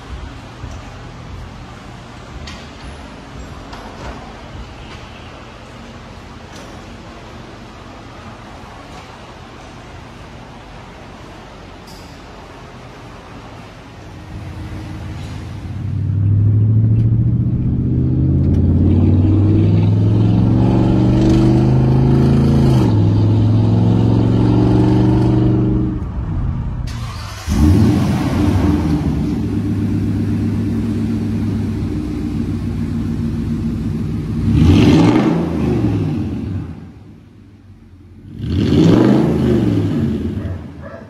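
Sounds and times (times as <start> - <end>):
truck exhaust accelerating: 14.2 - 40.9
engine revving: 15.8 - 26.0, 26.9 - 36.9, 38.2 - 40.7.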